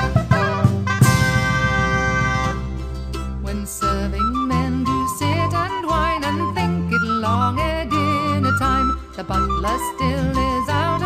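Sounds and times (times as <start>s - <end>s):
folk band playing a chord: 0.0s - 2.9s
folk band music: 0.0s - 11.0s.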